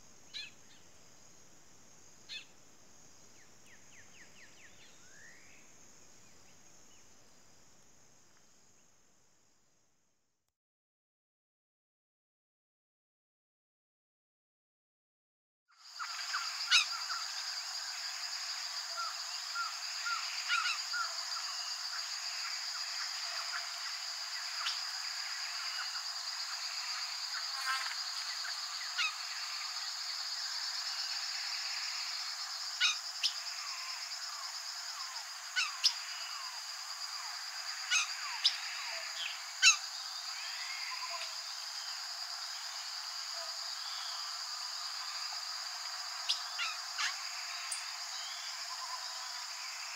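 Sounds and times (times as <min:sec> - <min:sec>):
high-pitched insect buzz: 0:15.9 - 0:49.9
sharp bird calls: 0:18.9 - 0:23.9, 0:32.8 - 0:34.0, 0:35.0 - 0:36.5, 0:37.8 - 0:41.3.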